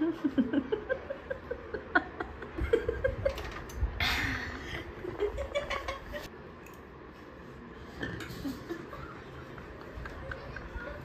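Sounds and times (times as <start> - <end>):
woman laughing: 0.0 - 3.4, 8.4 - 11.0.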